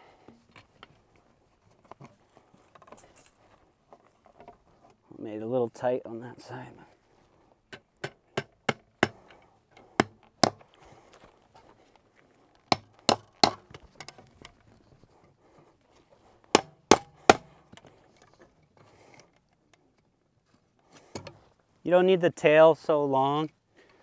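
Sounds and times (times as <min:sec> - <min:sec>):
hammer striking fence staple: 0:07.7 - 0:09.4, 0:10.0 - 0:10.6, 0:12.7 - 0:14.1, 0:16.5 - 0:17.5.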